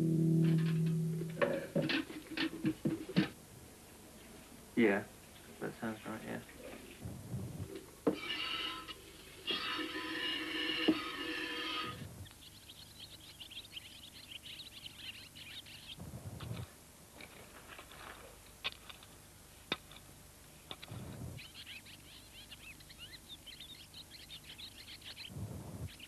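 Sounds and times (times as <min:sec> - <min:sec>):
birds chirping: 0:10.9 - 0:16.7, 0:20.8 - 0:26.0.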